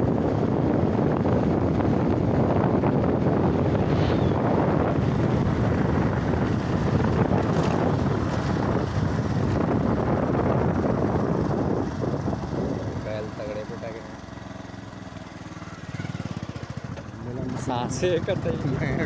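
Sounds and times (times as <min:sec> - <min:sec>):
wind buffeting microphone: 0:00.0 - 0:14.0
rumble of ride on rough road: 0:00.0 - 0:19.0.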